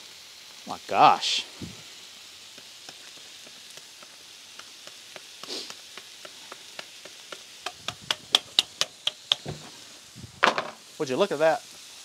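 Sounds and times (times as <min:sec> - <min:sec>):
food sizzling on griddle: 0:00.0 - 0:12.0
sharp taps: 0:05.9 - 0:09.6.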